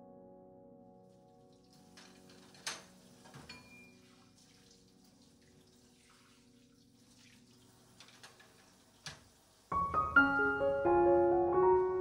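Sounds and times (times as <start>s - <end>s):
water dripping: 1.1s - 9.8s
bowls clinking on metal rack: 2.0s - 4.0s.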